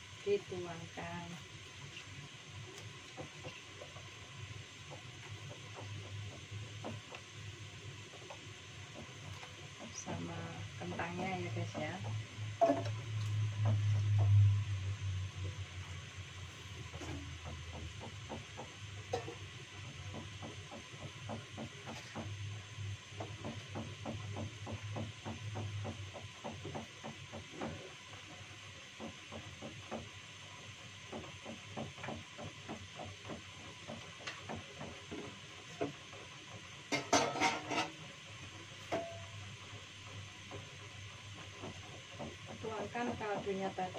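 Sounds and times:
soup bubbling with soft pops: 1.5s - 10.0s.

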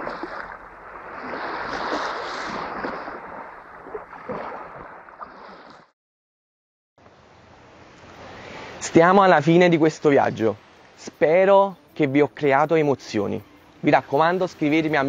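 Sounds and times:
waves washing over sand and pebbles: 0.0s - 5.9s.

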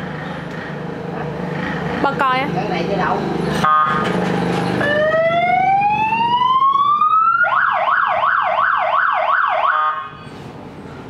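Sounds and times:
electronic siren wailing and yelping: 4.8s - 10.1s.

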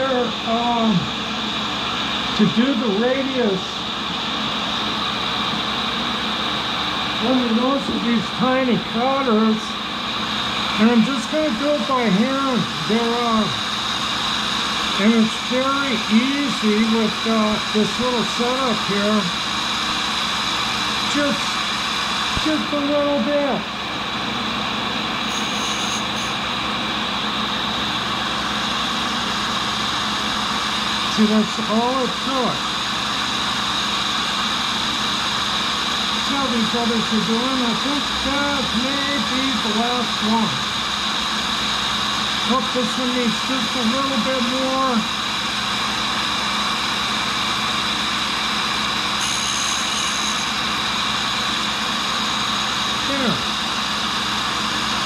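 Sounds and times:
grinder running: 0.0s - 55.0s
thin high whine: 0.0s - 55.0s
faint high whine: 24.8s - 33.4s, 48.9s - 55.0s.

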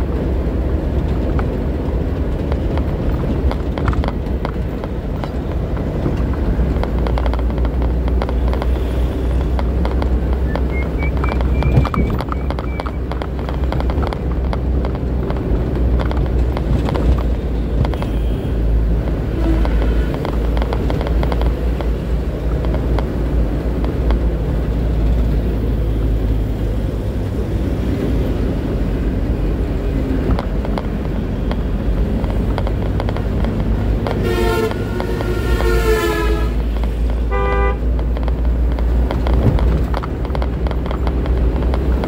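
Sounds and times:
truck engine drone: 0.0s - 42.0s
cab rattles and knocks: 0.8s - 8.4s, 11.3s - 18.1s, 38.0s - 42.0s.

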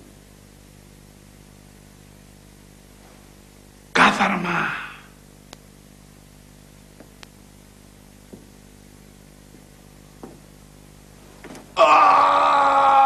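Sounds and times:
low background hum: 0.0s - 13.0s.

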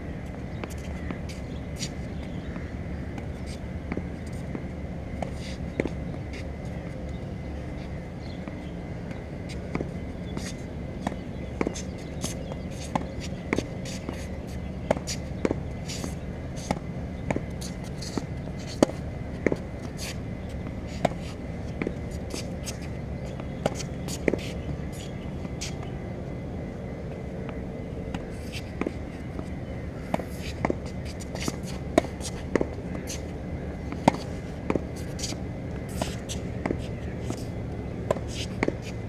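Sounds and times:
low background noise: 0.0s - 39.0s
racket hitting tennis ball: 9.6s - 39.0s.

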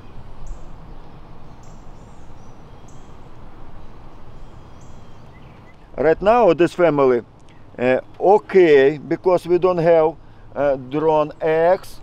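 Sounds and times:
honeybees humming: 0.0s - 6.1s.

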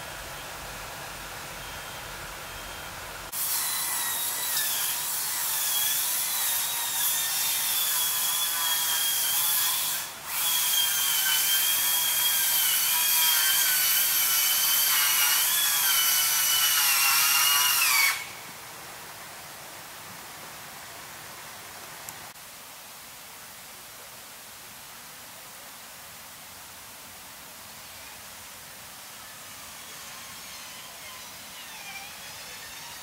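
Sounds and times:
high-pitched mechanical whine: 0.0s - 3.3s, 29.0s - 33.0s
steady hiss: 0.0s - 33.0s.

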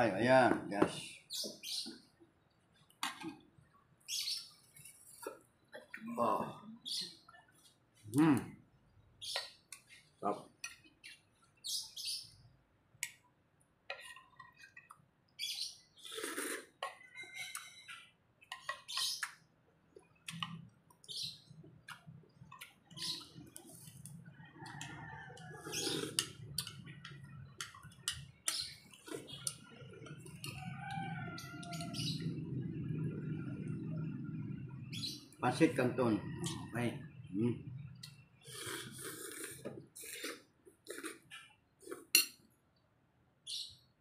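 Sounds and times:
small birds chirping: 0.1s - 13.3s, 14.0s - 40.3s, 42.8s - 44.0s
cutlery clinking on plates: 42.0s - 42.4s.

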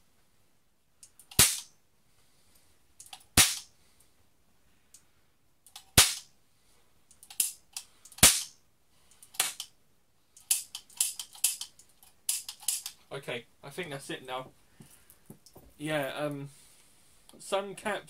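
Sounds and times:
toy cap gun bangs: 1.3s - 1.7s, 3.4s - 3.7s, 6.0s - 6.3s, 8.2s - 8.6s, 9.4s - 9.6s
hammer and cylinder clicks: 10.4s - 13.0s.

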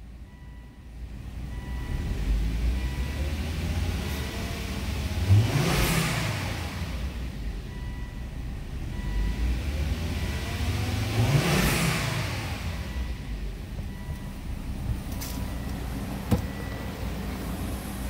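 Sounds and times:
car engine revving: 1.8s - 7.6s, 8.5s - 15.2s.

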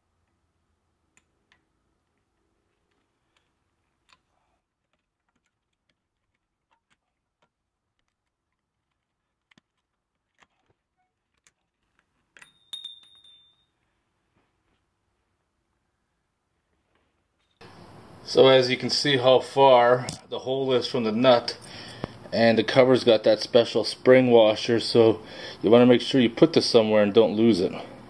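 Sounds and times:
ringing metal clink: 12.4s - 13.8s.

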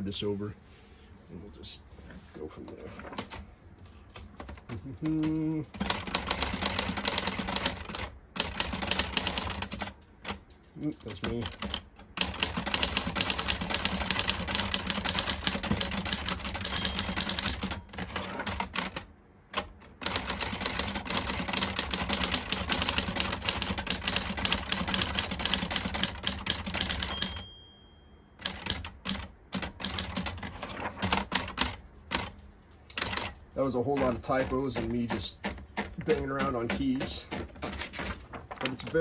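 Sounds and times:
typewriter typing fast: 4.2s - 27.4s, 28.4s - 39.0s.

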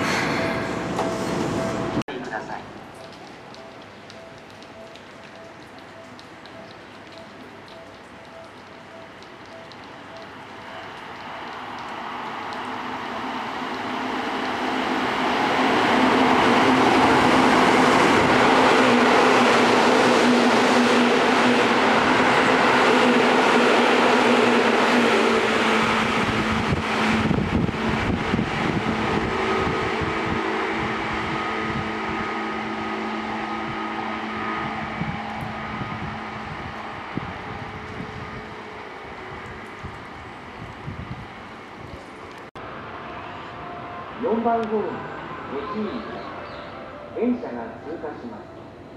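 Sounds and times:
electric train passing with whine: 0.0s - 48.9s.

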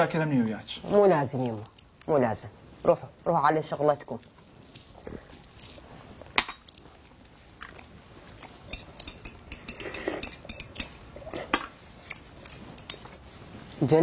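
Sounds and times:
clinks of glasses and cutlery: 8.7s - 11.8s, 12.5s - 13.1s.

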